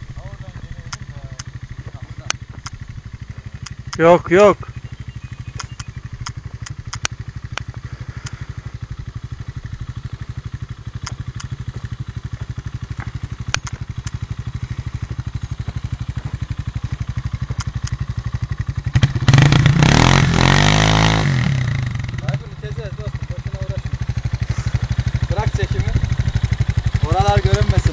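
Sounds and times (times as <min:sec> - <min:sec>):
motorcycle engine idling and revving: 0:00.0 - 0:27.9
sharp clicks: 0:00.8 - 0:01.6, 0:02.2 - 0:02.8, 0:03.5 - 0:04.2, 0:05.4 - 0:08.4, 0:11.0 - 0:11.6, 0:12.9 - 0:14.4, 0:17.5 - 0:18.1.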